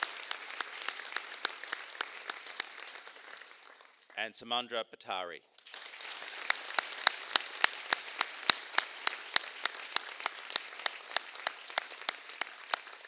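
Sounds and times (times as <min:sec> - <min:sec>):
audience applauding: 0:00.0 - 0:04.3, 0:05.6 - 0:13.0
loud close clapping: 0:00.0 - 0:04.4, 0:05.5 - 0:13.0.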